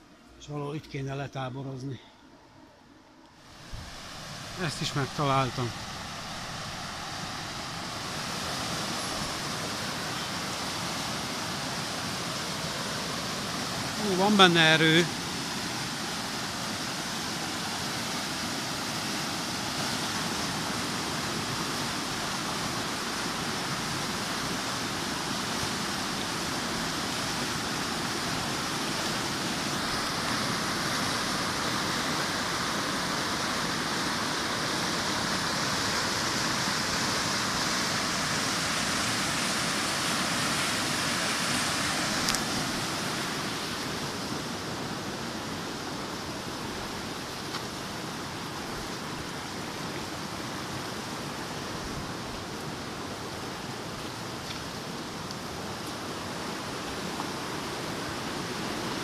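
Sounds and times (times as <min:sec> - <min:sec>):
water rushing through fish ladder: 0:03.6 - 0:44.2.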